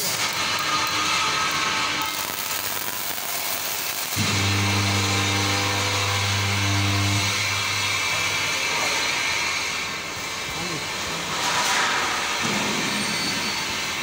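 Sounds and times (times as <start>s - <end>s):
crackling of arcing metal: 0.0s - 10.4s
deep electrical hum: 4.1s - 11.0s.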